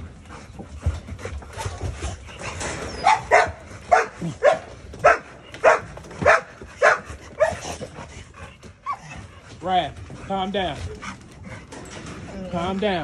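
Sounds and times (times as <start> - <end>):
dog barking: 3.0 - 7.7.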